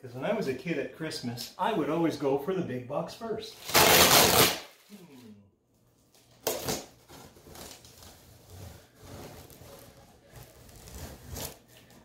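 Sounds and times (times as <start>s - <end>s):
knife slicing packing tape: 3.6s - 4.9s
tape crackle: 3.6s - 5.0s, 6.1s - 12.0s
knife scraping on cardboard: 7.5s - 12.0s.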